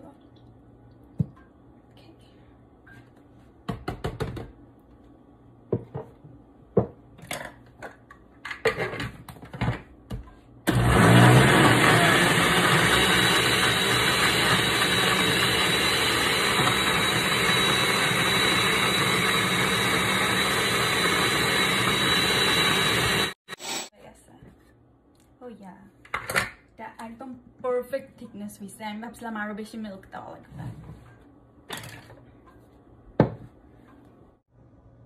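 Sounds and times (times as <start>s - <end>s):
blender running: 10.7s - 23.9s.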